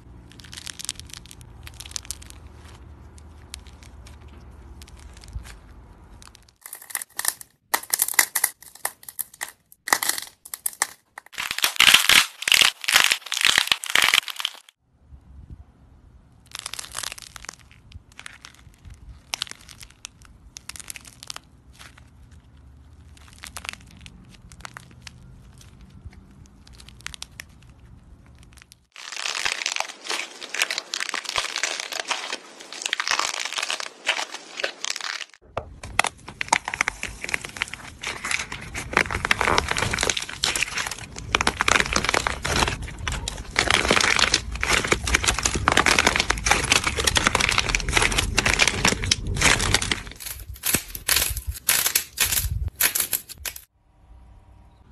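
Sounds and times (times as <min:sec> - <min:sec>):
dried clay crackling and crumbling: 0:00.0 - 0:14.8, 0:16.3 - 0:53.7.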